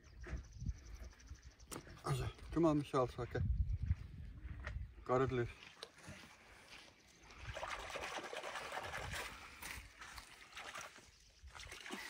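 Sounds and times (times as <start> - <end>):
water trickling and splashing: 7.1 - 12.0.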